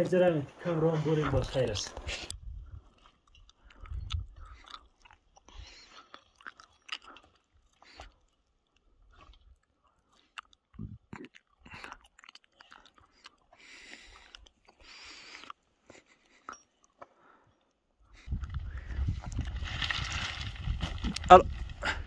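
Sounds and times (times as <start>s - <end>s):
footsteps on loose rocks: 18.3s - 22.0s.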